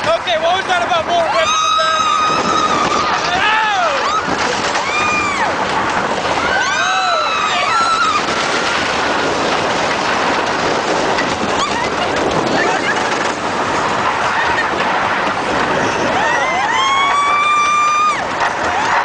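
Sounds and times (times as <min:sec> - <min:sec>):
roller coaster rattling on track: 0:00.0 - 0:19.0
riders screaming: 0:01.2 - 0:08.6, 0:15.8 - 0:19.0.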